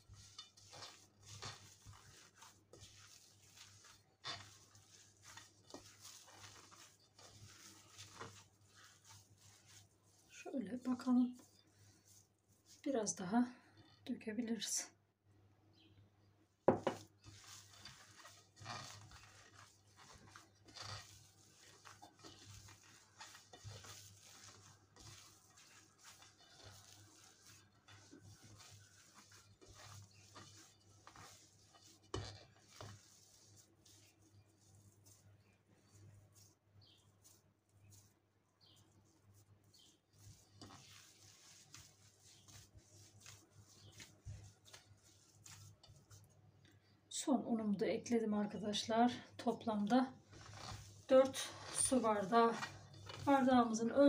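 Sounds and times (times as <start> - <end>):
hand kneading dough squishing: 0.0 - 14.8, 16.7 - 54.0.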